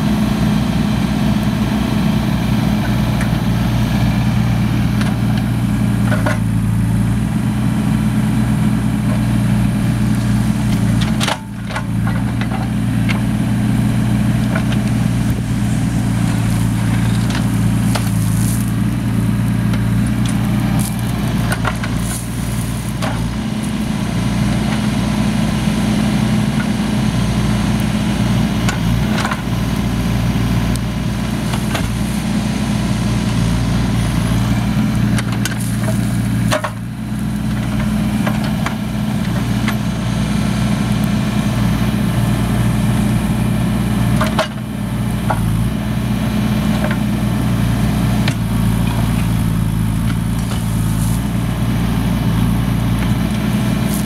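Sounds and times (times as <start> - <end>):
excavator diesel engine running: 0.0 - 54.0
bucket scraping gravel: 14.6 - 23.9, 35.3 - 36.7, 48.7 - 51.5, 53.7 - 54.0.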